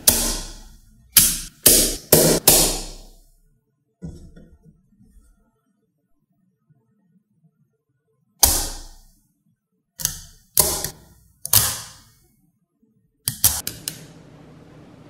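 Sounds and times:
magnetic balls snapping together: 0.0s - 3.2s, 8.4s - 9.1s, 10.0s - 12.2s, 13.3s - 14.1s.

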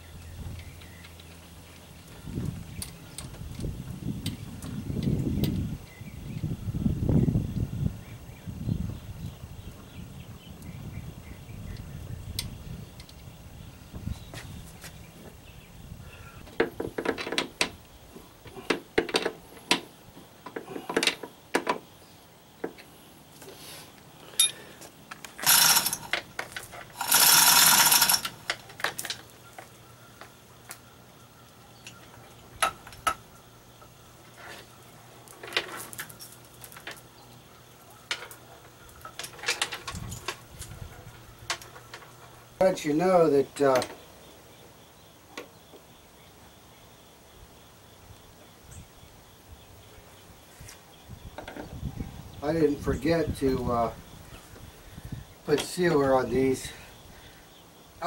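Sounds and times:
metallic clinks and clanks: 24.3s - 24.6s, 25.4s - 29.2s
chain rattling: 25.4s - 29.2s.

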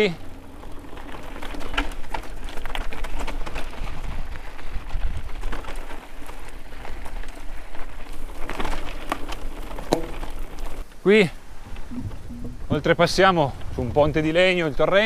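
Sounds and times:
bike rattling: 0.0s - 15.0s
tyres crunching on loose stones: 0.0s - 15.0s
wind rumble on microphone: 3.4s - 5.6s, 11.5s - 15.0s.

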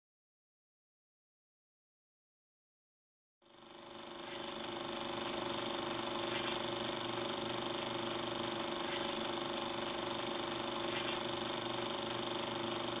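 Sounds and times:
film projector whirring: 3.4s - 13.0s.

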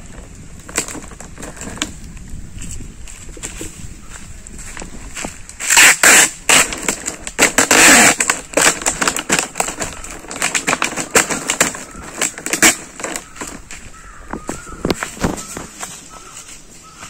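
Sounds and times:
plastic bottles crinkling: 0.0s - 2.2s, 4.8s - 16.3s
tape pulled off roll: 0.0s - 2.4s, 5.1s - 16.0s.

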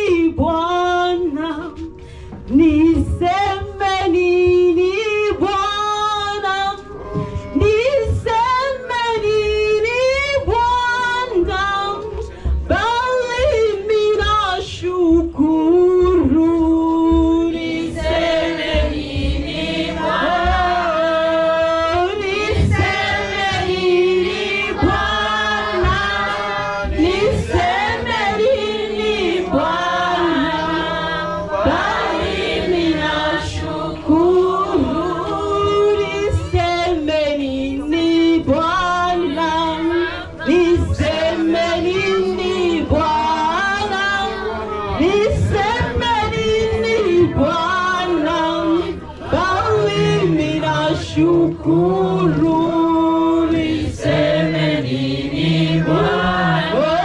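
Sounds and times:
steady low beat: 7.0s - 37.1s
choir singing gospel song: 15.8s - 57.0s.

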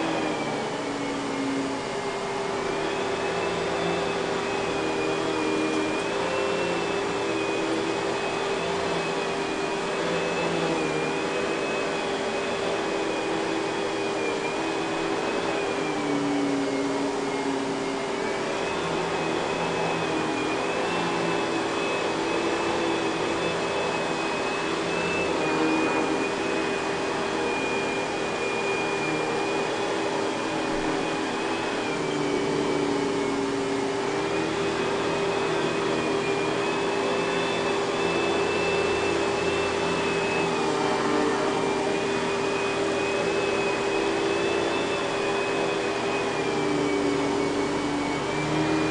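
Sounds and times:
vacuum cleaner on carpet: 0.0s - 48.9s.

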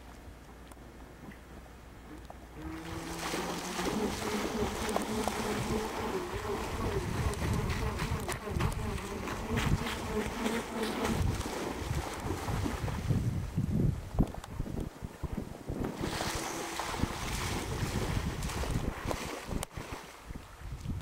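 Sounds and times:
model boat motor buzzing: 2.5s - 12.3s, 16.0s - 18.0s.

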